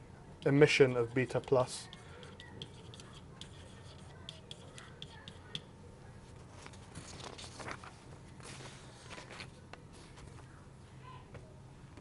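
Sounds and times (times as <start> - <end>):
stylus scratching on tablet: 0.4 - 5.7.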